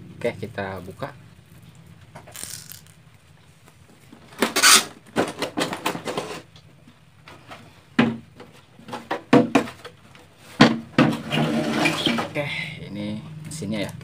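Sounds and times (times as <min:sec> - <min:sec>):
plastic knocks clicks and scrapes: 0:04.2 - 0:06.6, 0:07.3 - 0:12.3.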